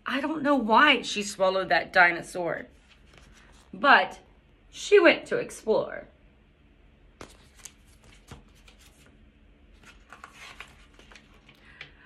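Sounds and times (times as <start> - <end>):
paper pages rustling: 2.7 - 3.8, 7.2 - 11.9.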